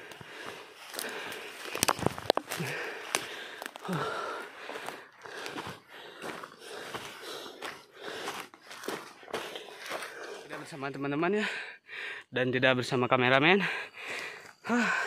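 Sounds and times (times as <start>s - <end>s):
heavy breathing: 0.0s - 10.8s, 11.4s - 12.3s, 13.6s - 15.0s
footsteps through dry leaves: 7.6s - 10.6s.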